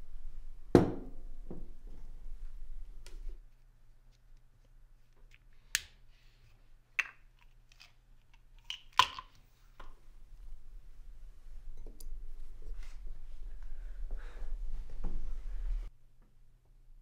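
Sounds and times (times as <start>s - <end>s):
plastic pill bottle clicks and taps: 7.0s - 10.0s.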